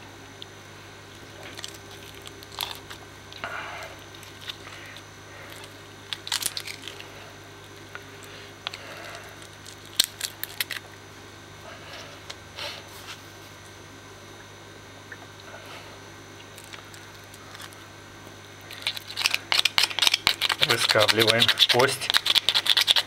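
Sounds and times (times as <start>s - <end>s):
knife crunching and tearing flesh: 1.4s - 3.4s, 4.0s - 7.2s, 9.0s - 10.8s, 18.7s - 23.0s.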